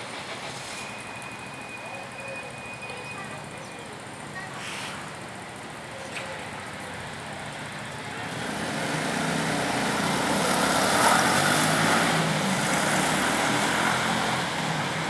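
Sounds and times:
motor vehicle passing by: 8.2 - 15.0.

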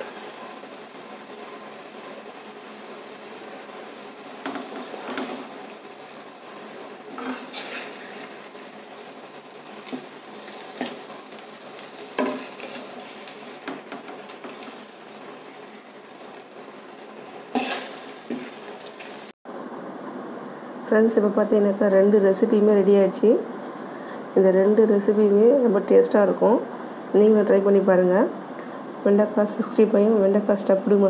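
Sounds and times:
metal spoon scraping a pan: 7.2 - 8.3, 17.5 - 19.1.

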